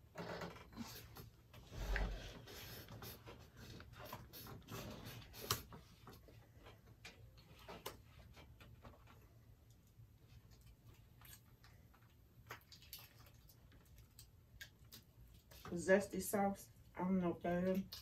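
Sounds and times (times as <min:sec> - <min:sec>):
person chewing food: 0:10.4 - 0:15.6.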